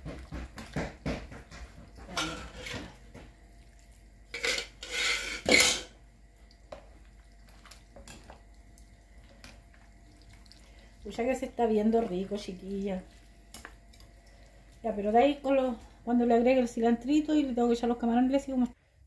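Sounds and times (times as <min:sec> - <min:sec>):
spoons scraping glass bowl: 0:04.3 - 0:05.9.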